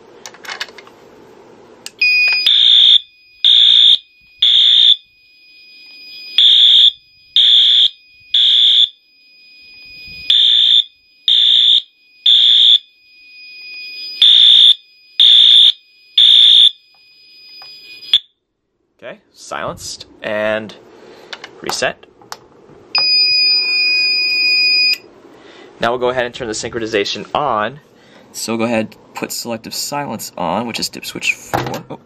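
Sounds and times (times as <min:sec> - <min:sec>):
faint steady high tone: 0:01.9 - 0:15.2, 0:16.8 - 0:18.2.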